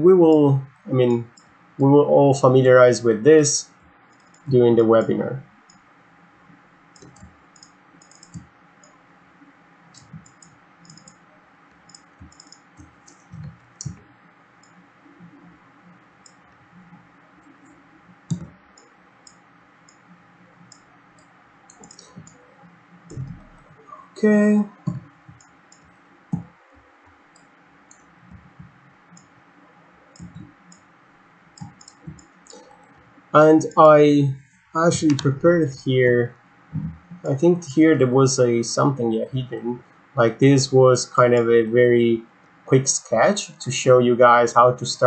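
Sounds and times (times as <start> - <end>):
computer mouse clicking: 4.1 - 4.5, 6.9 - 9.0, 9.9 - 14.0, 14.6 - 20.1, 20.7 - 22.4, 30.1 - 30.9, 31.6 - 33.0
mouse and keyboard clicks: 21.7 - 22.4.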